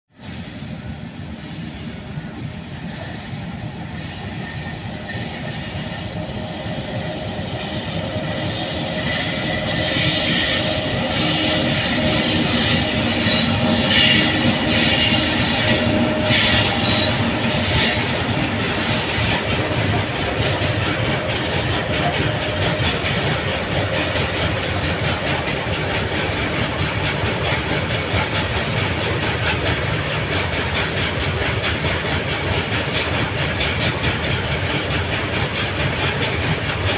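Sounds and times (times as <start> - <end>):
electric locomotives passing: 0.2 - 36.9.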